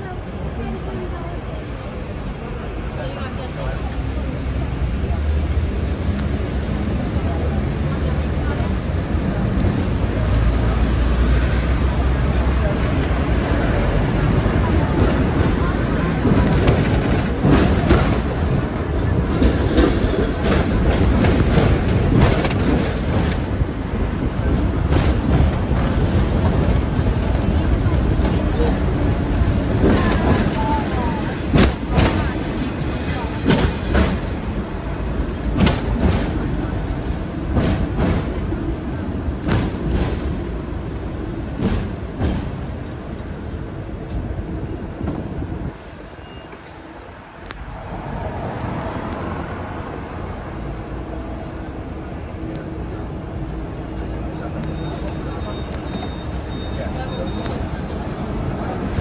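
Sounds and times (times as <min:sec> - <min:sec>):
tram rumbling: 0:00.0 - 0:59.0
tram knocks: 0:02.4 - 0:46.8
wheels clacking over rails: 0:06.1 - 0:45.6.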